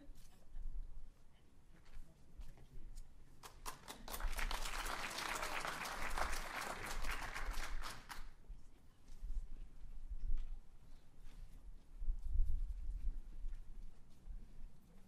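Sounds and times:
audience applauding: 3.6 - 8.3.

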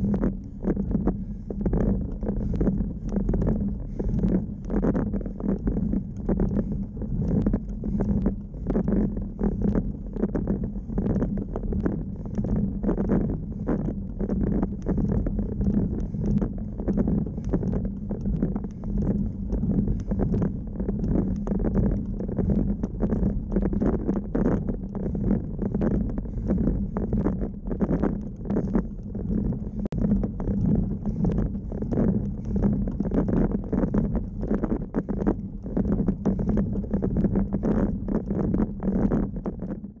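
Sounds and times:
tyre and road rumble: 0.0 - 40.0
wind on microphone: 0.0 - 40.0.

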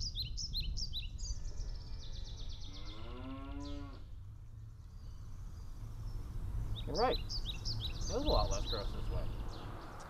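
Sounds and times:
low wind rumble on microphone: 0.0 - 2.8, 3.6 - 10.0
birds chirping rapidly: 0.0 - 10.0
cow mooing: 2.7 - 4.1.

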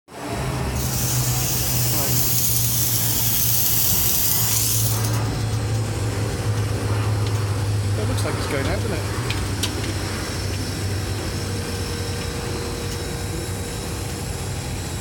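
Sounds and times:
air conditioning hum: 0.1 - 15.0
fog machine hissing: 0.8 - 5.3.

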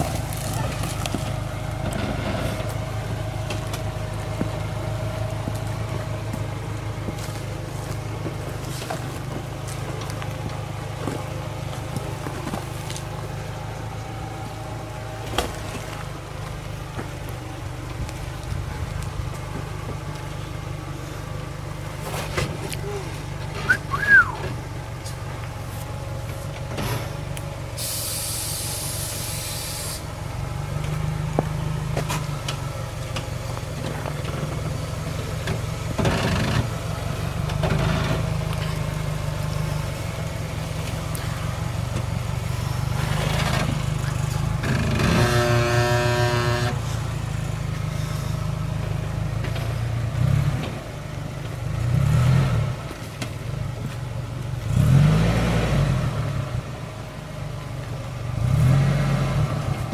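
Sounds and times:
van engine running at low revs: 0.0 - 59.9
burst of hiss: 27.8 - 30.1.

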